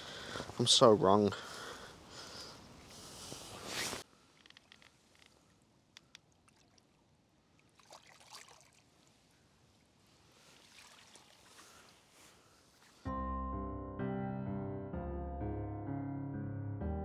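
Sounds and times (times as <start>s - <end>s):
light clicks: 4.4s - 6.3s
water splashing and trickling: 6.2s - 13.1s.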